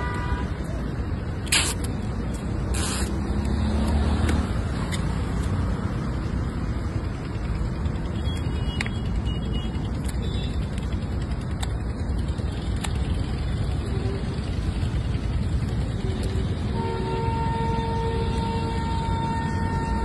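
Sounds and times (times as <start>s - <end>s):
road traffic noise: 0.0s - 20.0s
motor vehicle running close by: 2.4s - 19.2s
sharp clicks: 9.8s - 13.3s.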